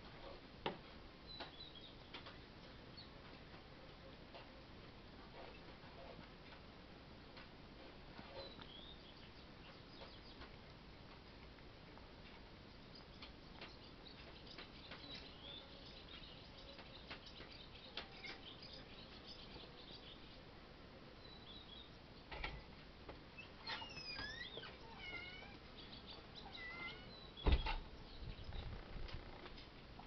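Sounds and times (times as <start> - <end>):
high-pitched animal calls: 23.4 - 25.6, 26.4 - 27.3
loud thump: 27.4 - 27.8.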